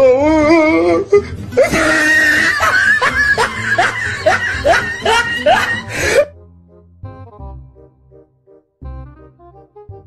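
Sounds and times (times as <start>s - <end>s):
background music: 0.0s - 10.0s
laughter: 1.6s - 5.9s.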